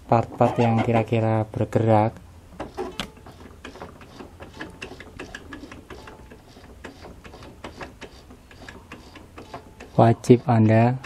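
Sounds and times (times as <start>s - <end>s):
sewing machine mechanism clicking: 2.6s - 10.6s.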